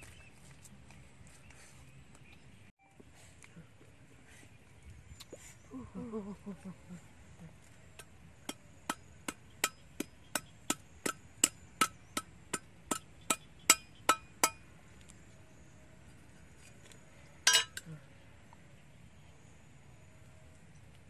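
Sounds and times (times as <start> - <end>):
tool striking something hard: 8.5 - 14.6.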